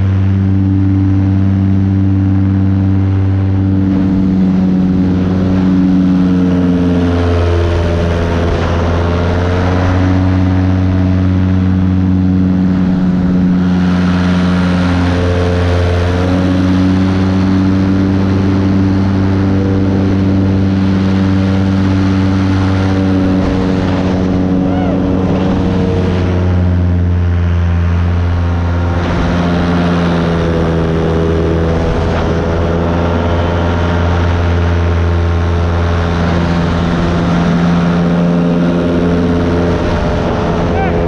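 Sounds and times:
paramotor engine droning: 0.0 - 41.0.

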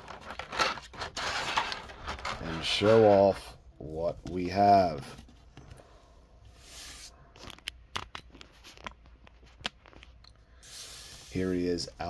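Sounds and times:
packaging rustle: 0.0 - 3.1.

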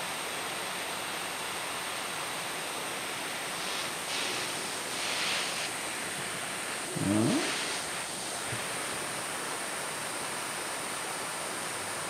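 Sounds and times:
gas burner flame hissing: 2.5 - 12.0.

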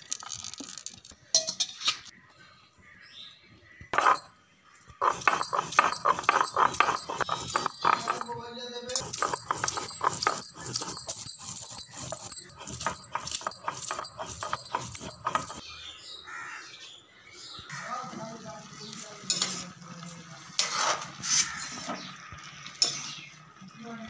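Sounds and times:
sharp metal clinks: 4.0 - 4.4, 5.0 - 15.6
stone grinding strokes: 4.0 - 4.4, 5.0 - 15.6
quiet scraping: 5.0 - 15.6.

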